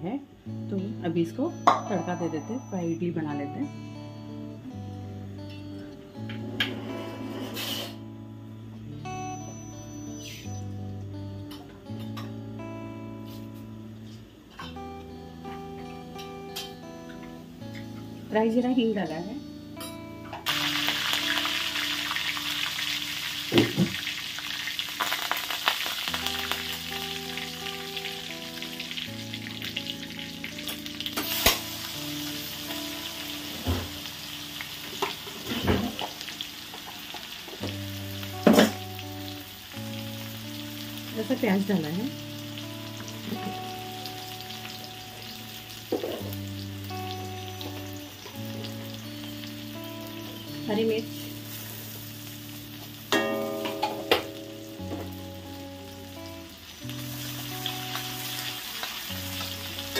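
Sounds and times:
soft background music: 0.0s - 59.9s
spices sizzling in hot oil: 0.8s - 4.5s, 5.3s - 8.3s, 8.9s - 13.8s, 14.7s - 59.9s
onion dropped into sizzling oil: 20.4s - 27.4s, 30.6s - 32.8s, 52.8s - 55.3s.

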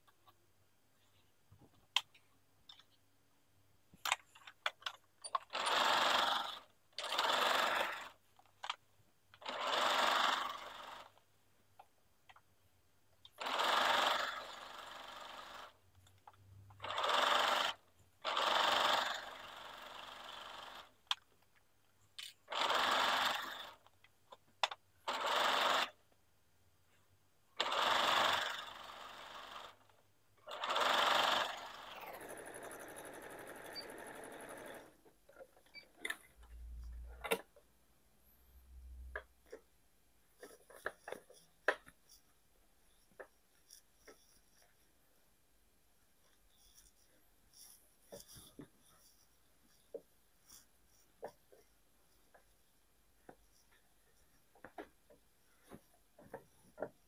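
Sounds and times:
sewing machine stitching: 4.1s - 11.3s, 13.2s - 21.4s, 22.2s - 24.0s, 24.6s - 26.0s, 27.6s - 37.6s.

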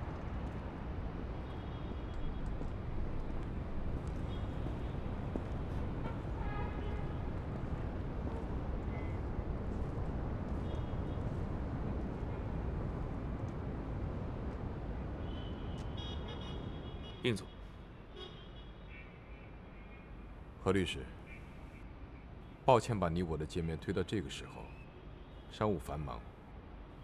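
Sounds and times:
distant city traffic rumble: 0.0s - 18.3s.

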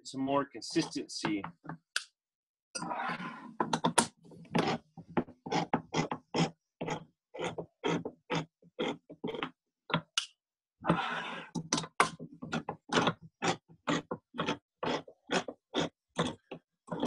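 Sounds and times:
can opener grinding through lid: 4.5s - 4.8s, 12.6s - 17.0s.

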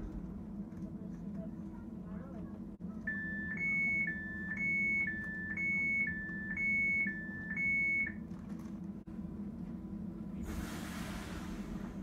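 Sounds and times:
train low hum: 0.0s - 7.6s, 8.2s - 12.0s
two-tone door warning beep: 3.1s - 8.2s.

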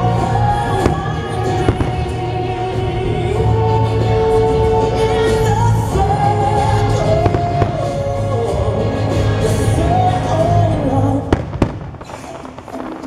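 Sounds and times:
fireworks bursting: 0.0s - 4.5s, 11.2s - 13.0s
soundtrack music over loudspeakers: 0.0s - 13.0s.

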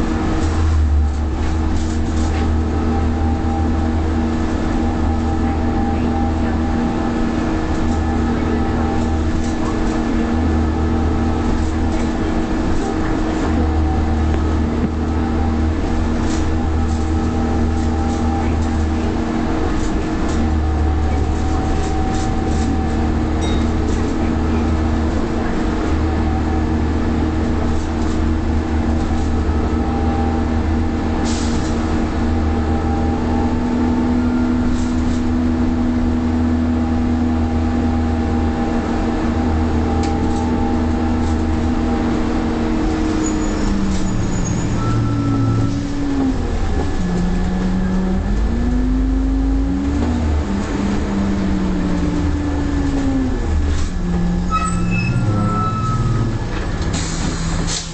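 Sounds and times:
bus engine whine and rumble: 0.0s - 57.9s.

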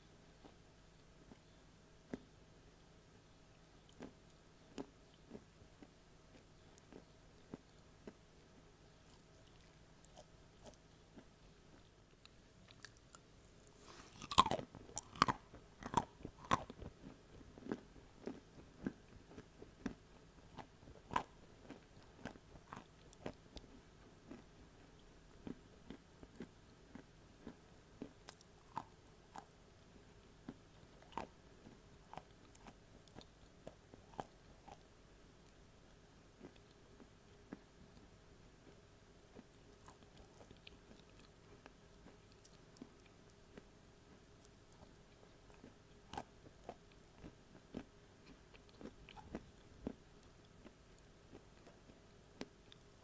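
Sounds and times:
chewing crunches: 9.0s - 29.6s, 30.5s - 35.6s, 36.4s - 53.0s
crisp crunching bites: 13.8s - 16.8s.

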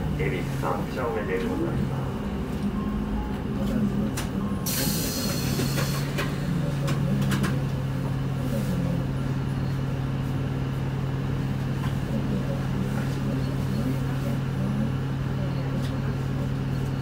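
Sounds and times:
bus diesel engine humming: 0.0s - 17.0s
air hiss: 4.6s - 6.1s.

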